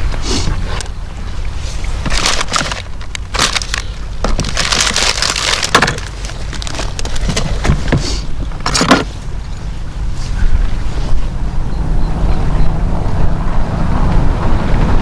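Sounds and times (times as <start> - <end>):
crackling and rustling: 0.1 - 11.2
wind buffeting microphone: 6.4 - 15.0.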